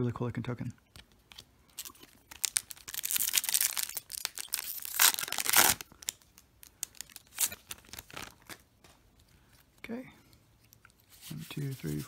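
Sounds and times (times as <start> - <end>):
wrapper crinkling: 1.0 - 8.9
plastic wrapper tearing: 1.3 - 8.6.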